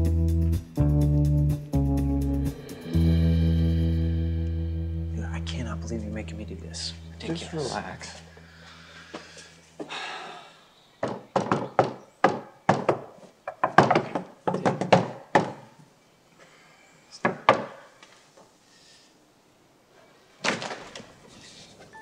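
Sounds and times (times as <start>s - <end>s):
fist knocking on door: 11.0s - 13.1s.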